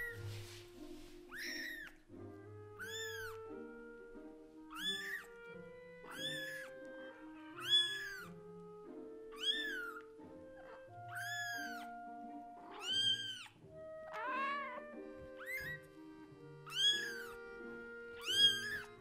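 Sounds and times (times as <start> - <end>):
soft background music: 0.0 - 19.0
kitten meowing: 1.3 - 2.0, 2.8 - 3.8, 4.7 - 8.4, 9.3 - 19.0.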